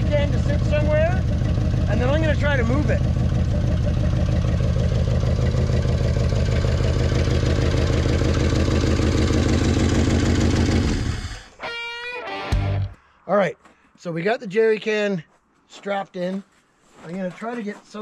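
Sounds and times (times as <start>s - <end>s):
truck engine idling: 0.0s - 11.4s.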